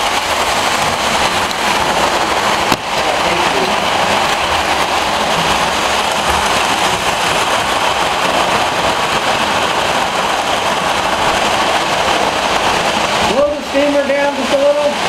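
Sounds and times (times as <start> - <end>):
model trains rolling rumble: 0.0 - 15.0.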